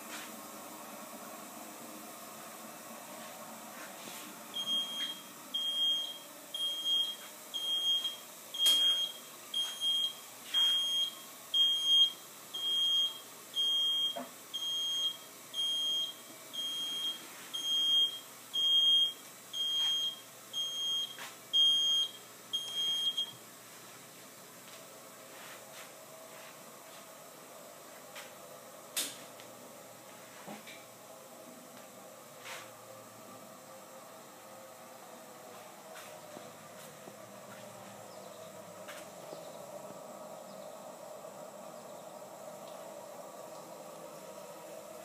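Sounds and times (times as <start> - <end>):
timer alarm beeping: 4.6 - 23.4.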